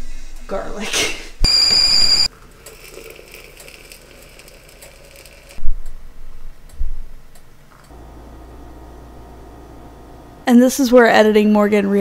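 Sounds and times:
kettle whistling: 1.4 - 2.3.

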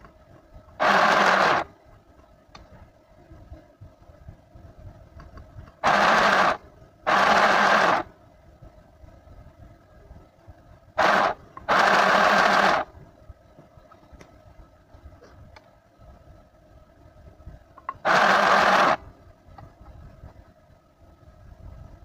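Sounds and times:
electric sewing machine stitching: 0.8 - 1.7, 5.8 - 8.1, 11.0 - 12.9, 17.9 - 19.0.

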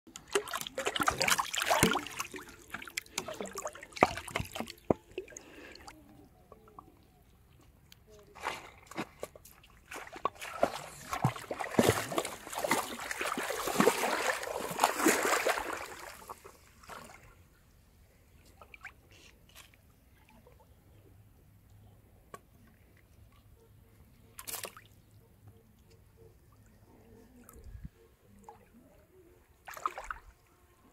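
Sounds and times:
water splashing around wading legs: 0.1 - 5.9, 9.1 - 17.3, 29.7 - 30.3
water drips and trickles: 0.1 - 6.8.

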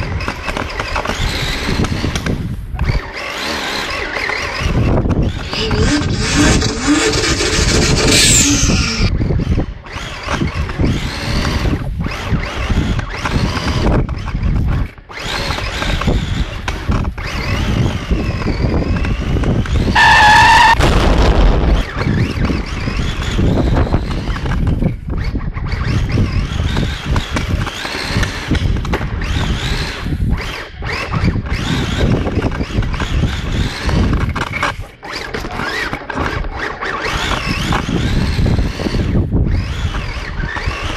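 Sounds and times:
car engine revving: 5.2 - 9.1
tyre squeal: 5.2 - 9.1, 19.9 - 20.8
loud steady tone: 5.4 - 9.1.

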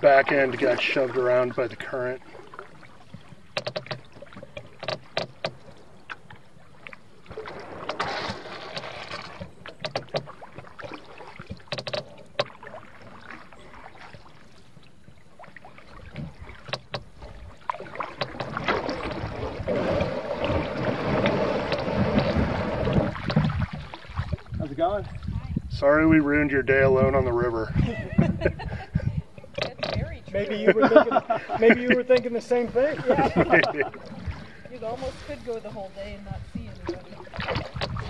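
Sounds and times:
paddle strokes splashing: 0.0 - 25.4, 27.8 - 38.0.

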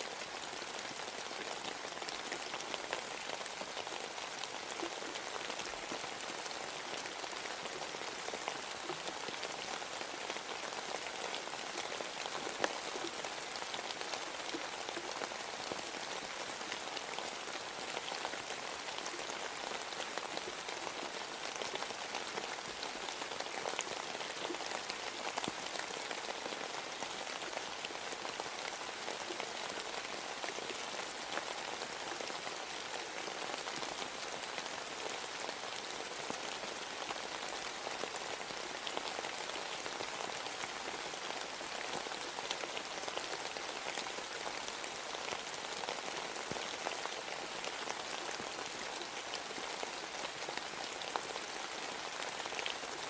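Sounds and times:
steady rain: 0.0 - 53.0.

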